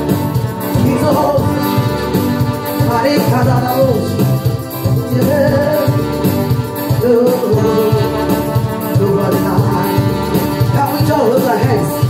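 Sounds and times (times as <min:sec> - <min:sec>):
gospel band playing: 0:00.0 - 0:12.0
woman singing into a microphone: 0:04.9 - 0:06.0, 0:06.9 - 0:12.0.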